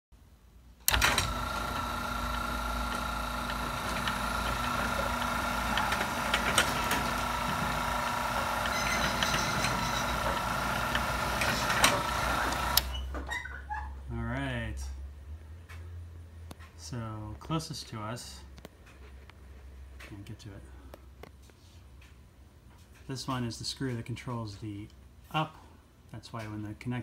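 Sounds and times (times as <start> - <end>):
garage door opener motor whining: 0.8 - 13.4.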